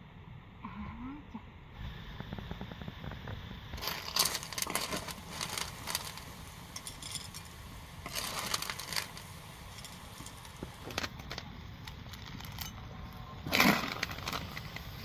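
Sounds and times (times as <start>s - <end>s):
snail shells clattering on metal: 3.8s - 12.9s.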